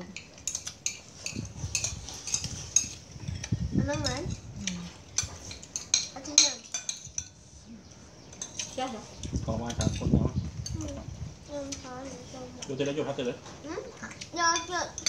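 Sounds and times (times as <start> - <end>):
metal spoons clinking on plates: 0.1 - 7.4, 8.2 - 10.9, 14.1 - 15.0.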